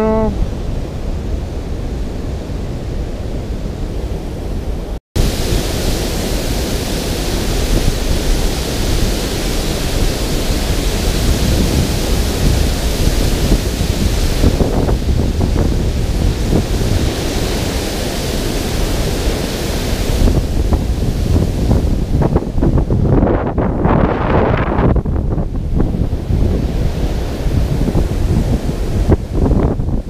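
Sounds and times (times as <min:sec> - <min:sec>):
wind rumbling on microphone: 0:00.0 - 0:30.0
water rushing over a spillway: 0:05.2 - 0:23.8, 0:24.9 - 0:30.0.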